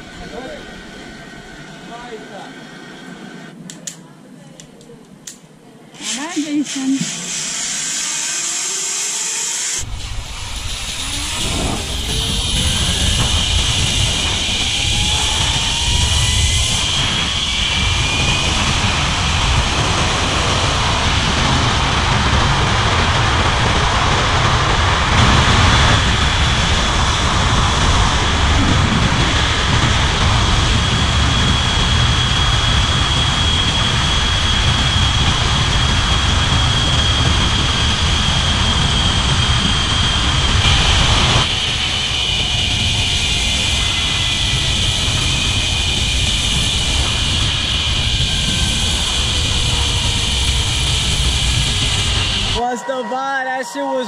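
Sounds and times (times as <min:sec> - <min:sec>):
zip line pulleys whining: 0:06.0 - 0:53.0
wind buffeting microphone: 0:09.8 - 0:52.6.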